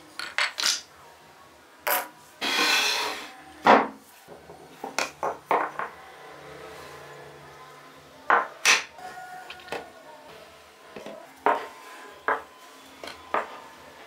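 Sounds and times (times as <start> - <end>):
wood scraping on workbench: 2.4 - 3.3.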